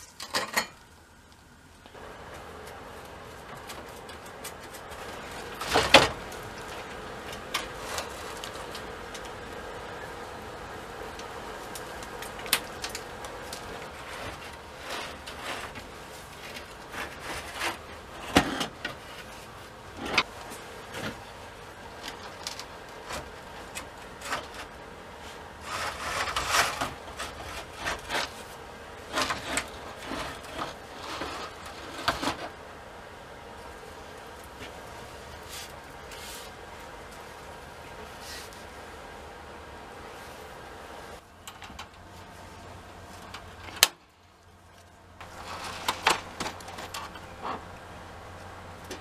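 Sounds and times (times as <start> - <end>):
metal frames clanking and scraping: 45.2 - 49.0.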